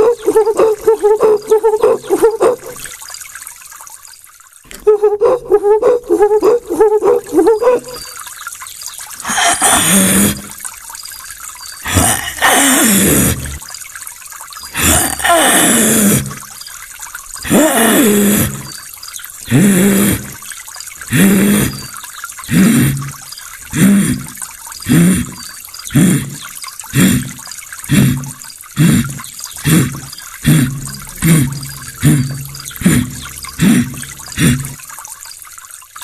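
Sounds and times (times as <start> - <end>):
man imitating animal calls: 0.0 - 2.9, 4.7 - 8.2, 9.2 - 10.6, 11.8 - 13.6, 14.8 - 16.4, 17.4 - 18.8, 19.5 - 20.4, 21.1 - 34.8.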